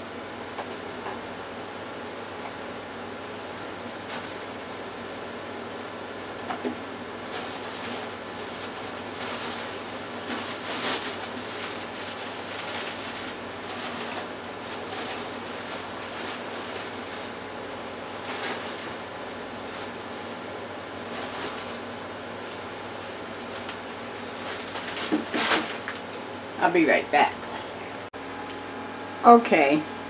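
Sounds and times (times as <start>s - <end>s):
background hiss with low hum: 0.0s - 30.0s.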